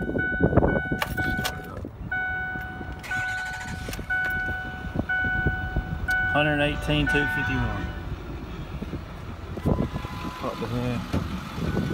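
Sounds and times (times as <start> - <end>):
dashboard warning chime: 0.0 - 8.7, 9.7 - 10.6.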